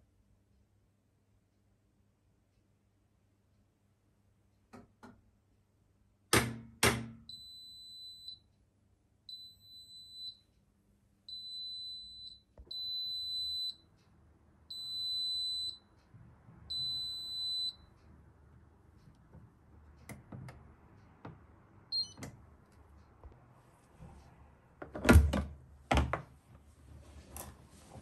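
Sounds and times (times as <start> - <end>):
washing machine beeps: 7.3 - 8.5, 9.3 - 10.5, 11.3 - 13.9, 14.7 - 15.9, 16.7 - 17.9, 21.9 - 22.3.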